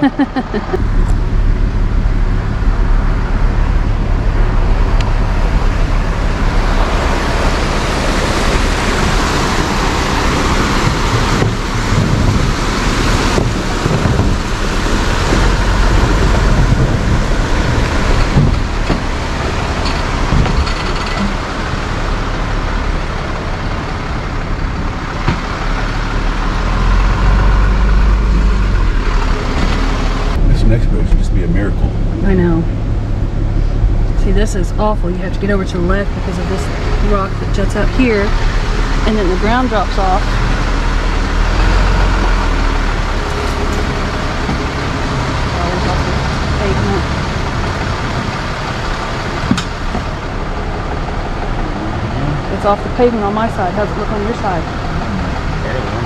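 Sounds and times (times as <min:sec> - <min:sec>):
road and tyre noise: 0:00.0 - 0:56.0
truck engine droning: 0:00.0 - 0:56.0.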